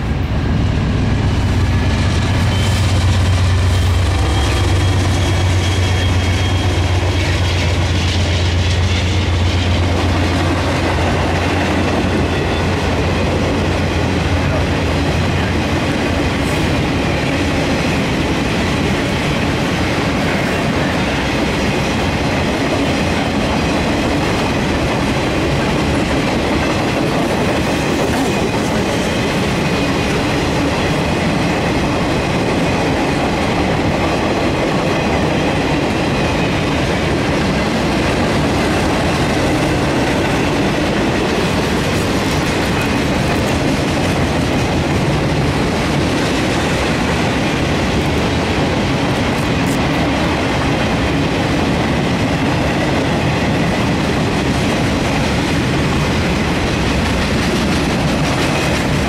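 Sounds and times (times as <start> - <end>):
freight train rolling past: 0.0 - 59.0.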